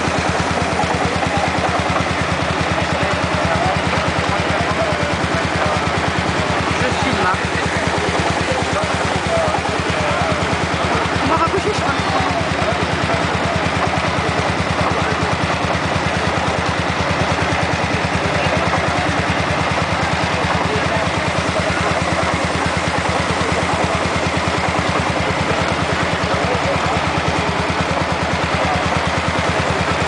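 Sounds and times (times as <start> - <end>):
threshing machine rumble and rattle: 0.0 - 30.0
tractor engine running under load: 0.0 - 30.0.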